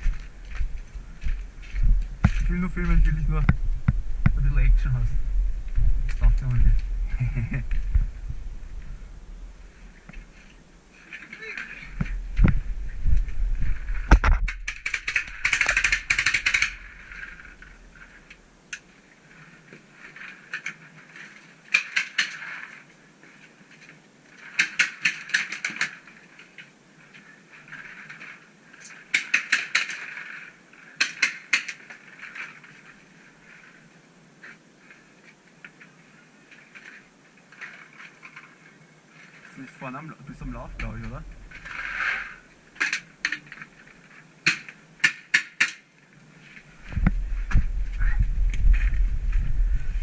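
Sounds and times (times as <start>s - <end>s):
low thuds: 0.0s - 10.3s, 46.7s - 50.0s.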